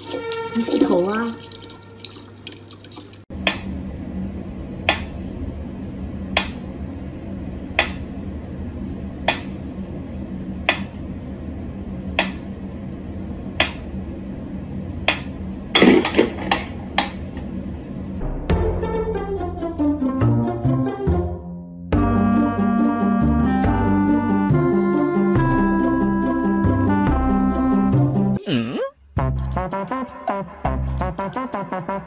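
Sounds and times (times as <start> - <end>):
low hum: 3.3 - 20.1.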